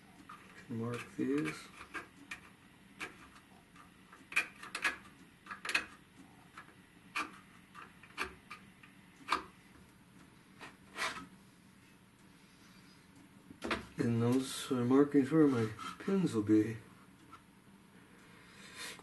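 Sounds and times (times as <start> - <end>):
pencil scratching on wood: 0.3 - 5.8, 10.6 - 11.3, 15.5 - 16.1.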